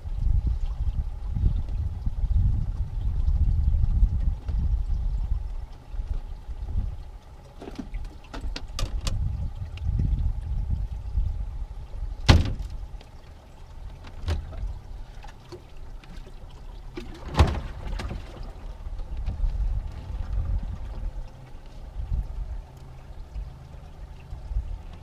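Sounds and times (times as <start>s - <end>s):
low rumble of boat on water: 0.0s - 25.0s
knocks against aluminium boat hull: 12.2s - 12.7s.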